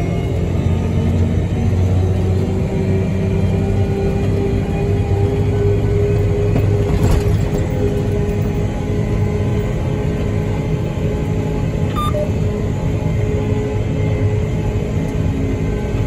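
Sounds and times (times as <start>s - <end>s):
combine harvester droning: 0.0s - 16.0s
high beep: 11.9s - 12.4s.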